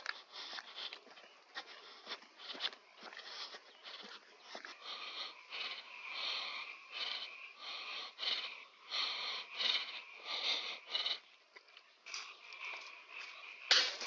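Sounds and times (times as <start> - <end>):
person breathing hard: 0.0 - 11.4.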